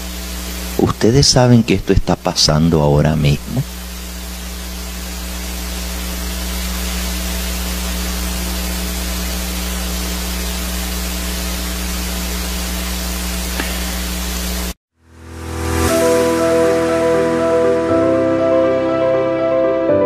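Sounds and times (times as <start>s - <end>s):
mains hum: 0.0s - 14.8s
electrical hiss: 0.0s - 18.2s.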